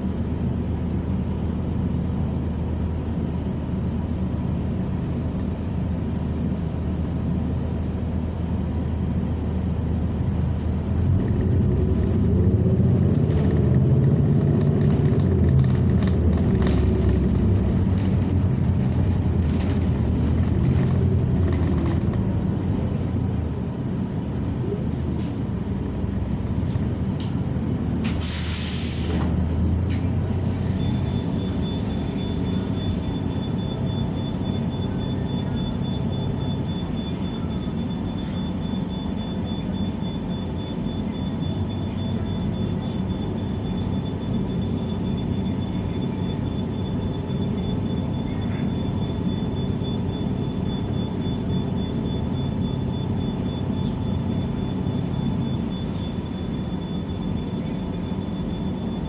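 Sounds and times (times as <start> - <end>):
bus engine and road rumble: 0.0 - 59.0
air hiss: 28.1 - 29.2, 30.4 - 33.1.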